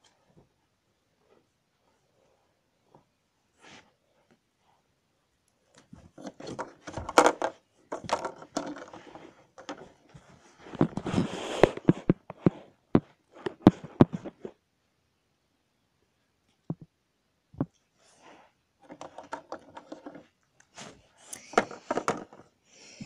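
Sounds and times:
plastic toys clicking and scraping: 0:06.1 - 0:09.9, 0:18.8 - 0:22.5.

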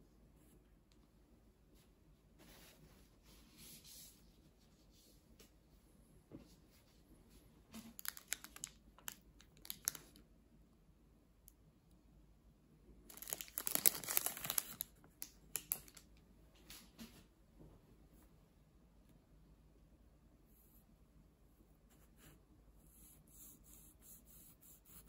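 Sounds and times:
plastic wrapper crinkling: 0:07.8 - 0:10.2, 0:13.1 - 0:16.1.

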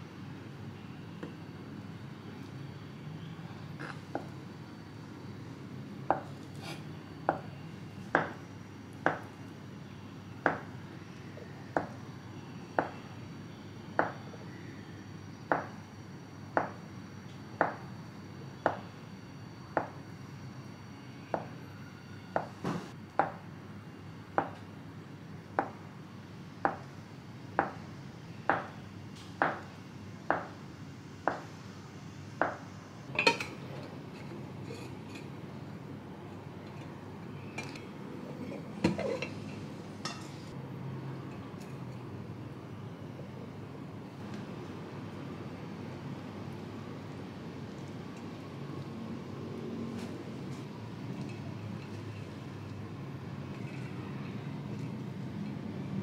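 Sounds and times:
enamel plate clink: 0:33.1 - 0:33.6.

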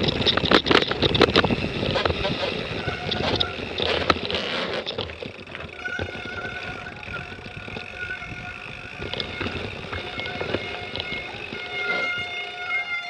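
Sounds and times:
bike rattling over bumps: 0:00.0 - 0:13.0
bike tyres rumbling on dirt: 0:00.0 - 0:13.0
faint steady high tone: 0:05.6 - 0:13.0.

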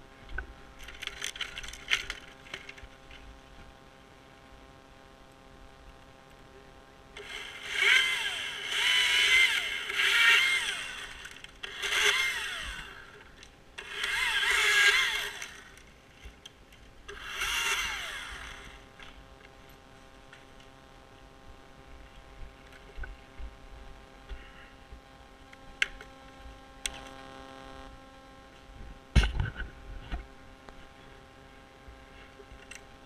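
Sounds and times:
chainsaw idling and revving: 0:07.2 - 0:13.2, 0:13.8 - 0:15.8, 0:17.1 - 0:18.8.

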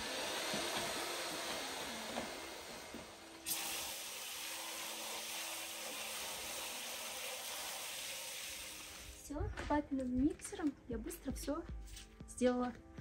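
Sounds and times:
electric mortar mixer whirring: 0:00.0 - 0:09.2.

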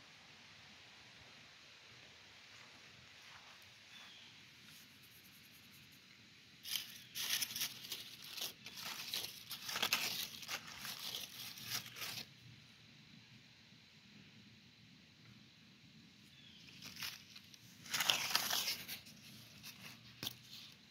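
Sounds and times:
dry leaves rustling and crackling: 0:06.6 - 0:12.3, 0:16.5 - 0:20.9.

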